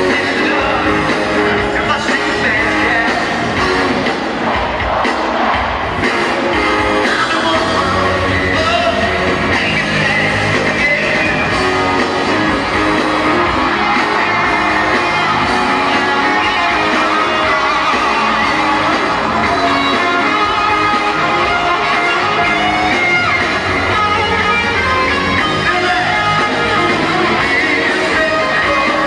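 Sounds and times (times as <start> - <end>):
person singing: 0.0 - 3.9, 24.1 - 29.0
electric guitar: 0.0 - 29.0
live rock band playing: 0.0 - 29.0
shouts: 12.3 - 29.0.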